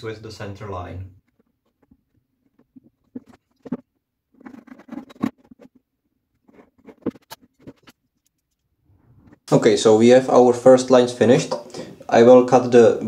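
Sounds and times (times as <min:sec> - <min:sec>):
pencil scratching on tape: 0:06.4 - 0:08.6.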